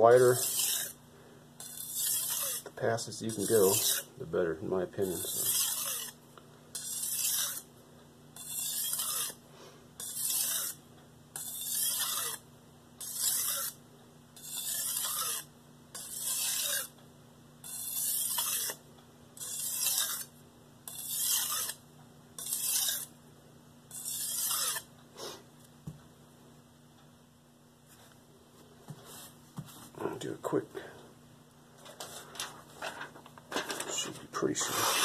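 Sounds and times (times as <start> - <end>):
knife rasping on whetstone: 0.1 - 1.0, 1.6 - 4.1, 5.0 - 7.7, 8.4 - 9.4, 10.0 - 10.8, 11.4 - 12.4, 13.0 - 13.8, 14.4 - 16.9, 17.6 - 18.8, 19.4 - 20.3, 20.9 - 21.8, 22.4 - 23.1, 23.9 - 24.9.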